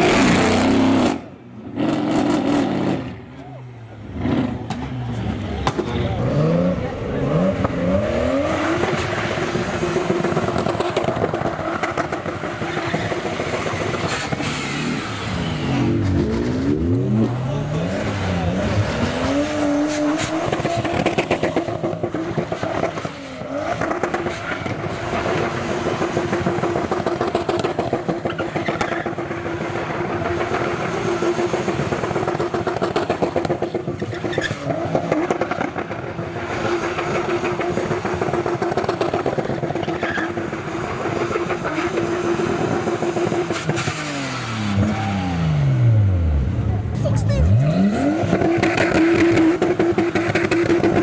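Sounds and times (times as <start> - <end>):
car engine revving hard: 0.0 - 3.2, 47.1 - 51.0.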